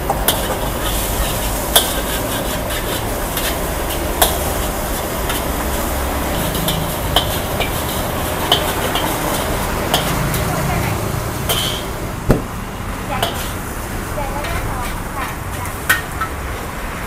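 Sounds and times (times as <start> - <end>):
ladle clanking on wok: 0.0 - 10.6, 11.4 - 16.5
ladle scraping a wok: 0.0 - 12.0, 13.1 - 16.4
food sizzling: 0.0 - 16.7.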